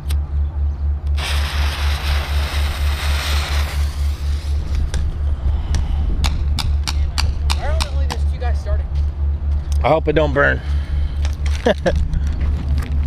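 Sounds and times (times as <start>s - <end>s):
pulsing machine hum: 0.0s - 13.0s
loud hiss: 1.2s - 4.8s.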